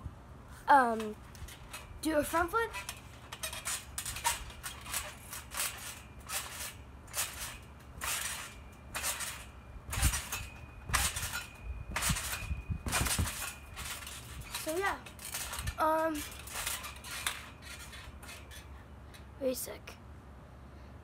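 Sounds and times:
trampoline mat rasping: 0.8 - 18.8
springs squeaking: 0.8 - 19.5
trampoline springs jangling: 0.8 - 19.5
heavy thumps on trampoline: 1.1 - 18.5
body landing on trampoline mat: 9.9 - 14.6.

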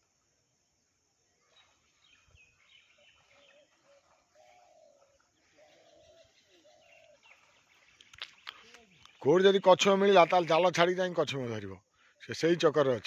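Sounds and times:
faint bird calls: 1.3 - 9.9.

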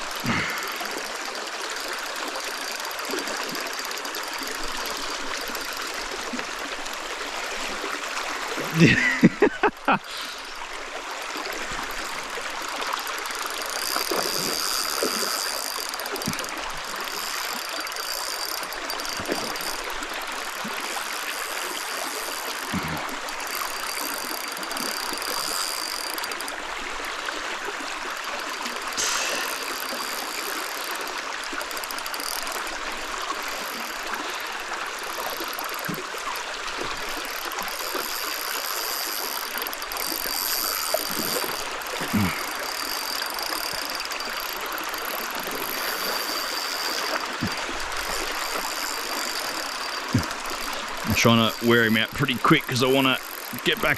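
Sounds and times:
flowing stream water: 0.0 - 53.9
thin high-pitched buzz: 13.2 - 26.6, 37.2 - 53.9.

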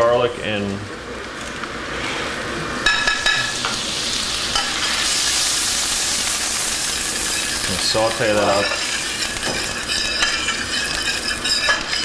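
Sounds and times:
garlic sizzling in a pan: 2.8 - 12.0.

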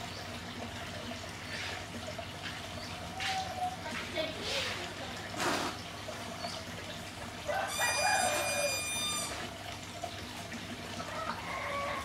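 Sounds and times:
rooster crowing: 7.5 - 9.3, 11.1 - 12.0.

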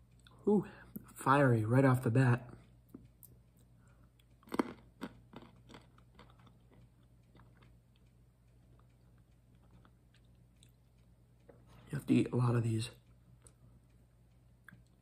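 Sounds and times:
person chewing almonds: 2.6 - 11.7, 13.0 - 15.0.

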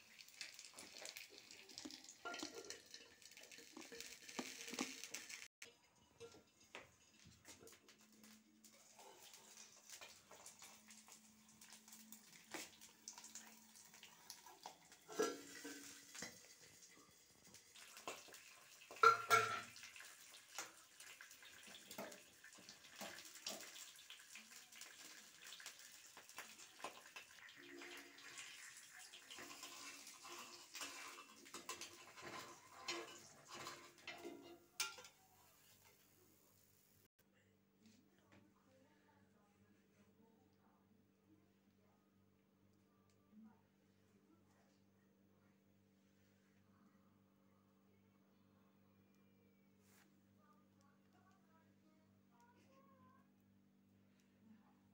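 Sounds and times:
egg frying hiss: 0.0 - 5.6, 8.7 - 32.7.

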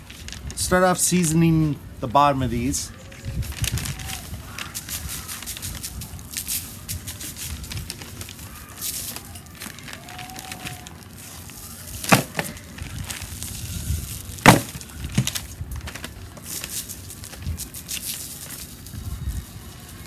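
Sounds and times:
butcher paper crinkling: 2.5 - 20.0
rub shaken from plastic shaker: 3.1 - 12.1, 16.4 - 20.0.

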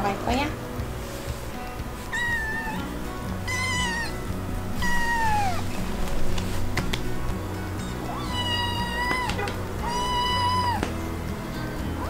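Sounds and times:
kitten meowing: 2.1 - 5.9, 7.9 - 11.0.

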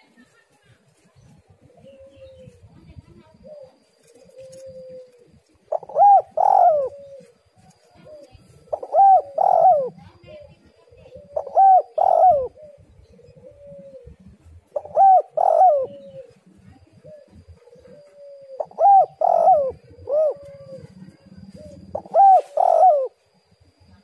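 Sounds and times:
dove cooing: 1.3 - 24.0.

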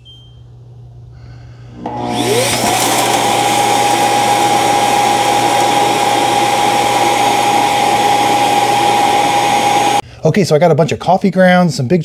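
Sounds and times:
vacuum suction motor whine: 1.7 - 10.0.

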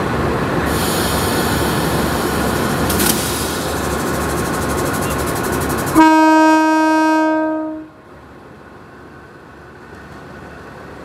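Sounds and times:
loud steady hiss: 0.6 - 6.2
locomotive horn blast: 5.9 - 8.0.

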